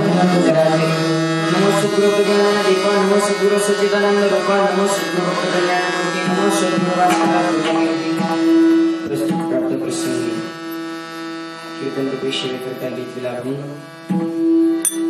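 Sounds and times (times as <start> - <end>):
long held note: 0.0 - 15.0
hand cymbals clashing: 14.8 - 15.0.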